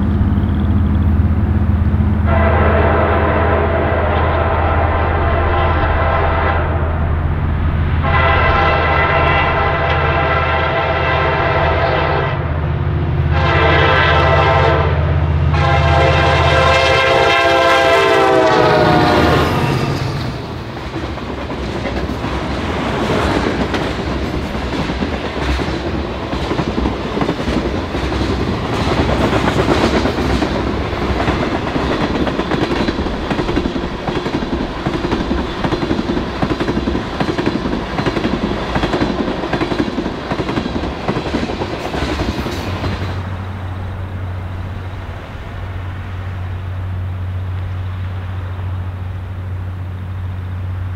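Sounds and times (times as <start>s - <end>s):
diesel engines droning: 0.0s - 10.9s
locomotive air horn blasts: 2.2s - 7.0s, 8.0s - 12.5s, 13.3s - 20.3s
train wheels clacking on rail joints: 19.7s - 43.5s.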